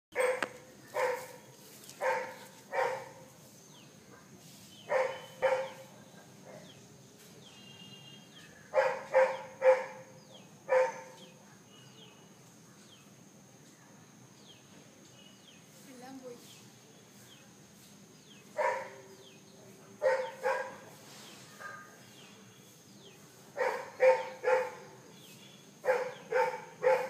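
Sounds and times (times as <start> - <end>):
dog barking: 0.1 - 3.3, 4.9 - 6.8, 8.7 - 10.1, 10.7 - 11.3, 18.6 - 19.2, 20.0 - 20.9, 21.6 - 22.0, 23.6 - 25.1, 25.8 - 27.0.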